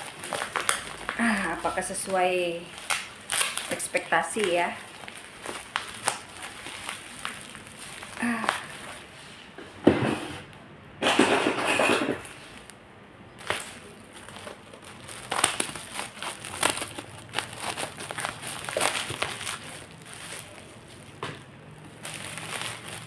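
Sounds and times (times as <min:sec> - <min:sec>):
plastic wrapping crinkling and tearing: 0:00.0 - 0:09.4, 0:12.2 - 0:23.0.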